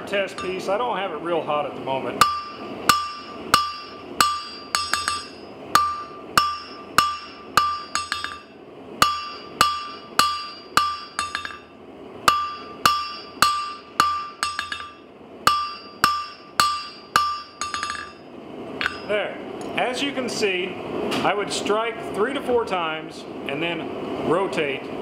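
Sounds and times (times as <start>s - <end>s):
hammer striking metal on anvil: 0.3s - 0.7s, 2.2s - 18.2s, 18.8s - 19.1s.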